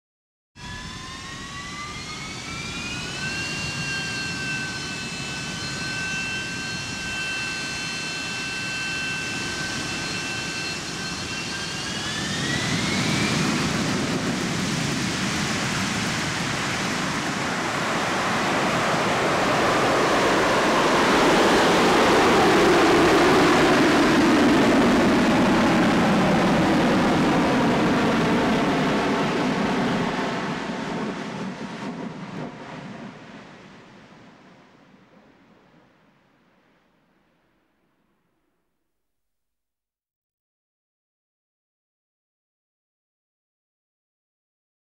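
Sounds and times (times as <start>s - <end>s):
jet engine whine and roar: 0.6s - 36.1s.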